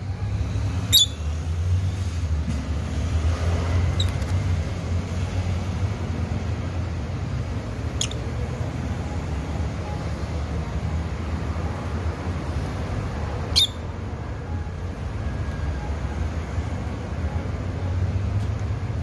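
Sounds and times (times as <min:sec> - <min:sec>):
high bird chirps: 0:00.8 - 0:01.2, 0:13.5 - 0:13.9.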